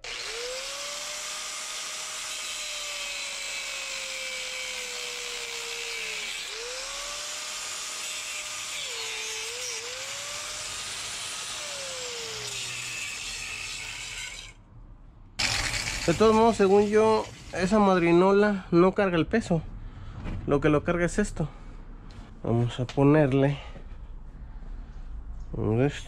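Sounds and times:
angle grinder grinding steel: 0.0 - 14.6, 15.4 - 18.2.

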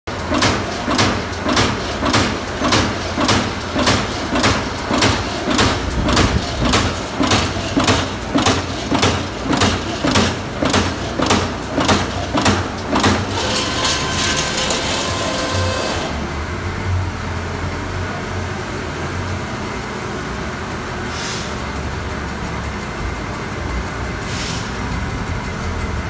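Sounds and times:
punch press strokes on sheet metal: 0.1 - 16.2.

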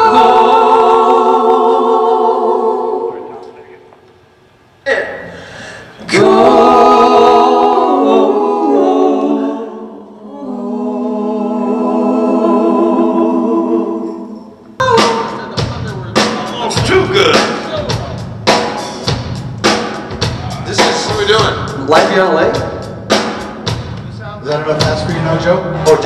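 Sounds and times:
voices singing a cappella: 0.0 - 3.9, 4.9 - 15.5
drum kit hits: 14.8 - 26.0
rock band playing: 14.8 - 26.0.

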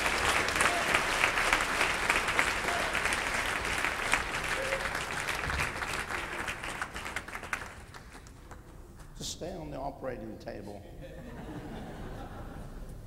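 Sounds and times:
congregation applauding: 0.0 - 8.7.

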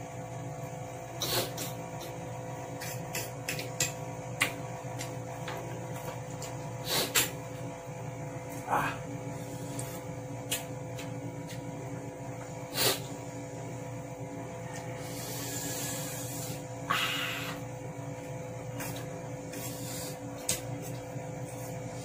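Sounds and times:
steady hum: 0.0 - 22.0
sniff: 1.2 - 1.7, 6.8 - 7.3, 12.7 - 13.1, 15.0 - 17.6, 19.6 - 20.2
soft mouth clicks: 2.8 - 4.5
man huffing and blowing breaths: 15.0 - 17.6.

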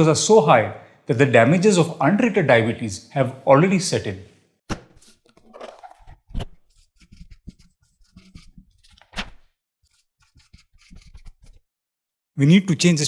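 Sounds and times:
pen scratching on paper: 5.8 - 9.2, 9.8 - 11.7.

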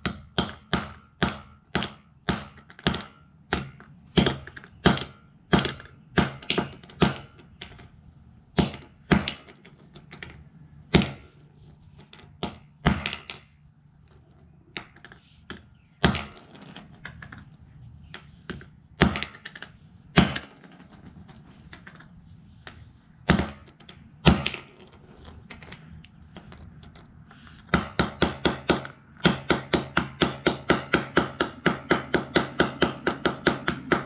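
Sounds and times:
hammer knocking on concrete: 27.7 - 34.0.

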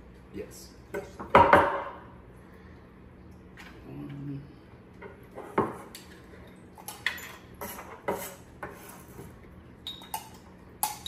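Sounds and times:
knife scraping wooden cutting board: 7.6 - 9.3.

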